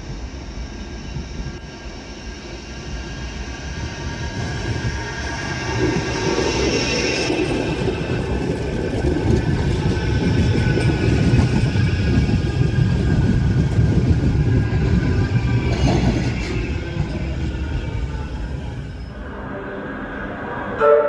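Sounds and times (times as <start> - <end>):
steel wheels rumbling on rails: 0.0 - 21.0.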